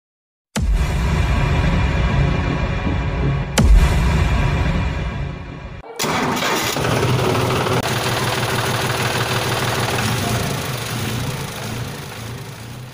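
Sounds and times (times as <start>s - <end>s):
engine starting and running: 5.8s - 12.9s.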